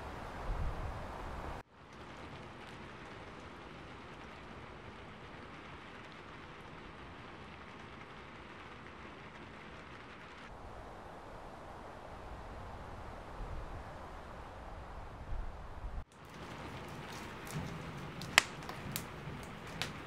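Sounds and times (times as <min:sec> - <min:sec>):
falling wet snow hiss: 0:00.0 - 0:13.4, 0:16.1 - 0:20.0
low rumble of wind: 0:00.0 - 0:20.0
light pattering: 0:16.1 - 0:20.0.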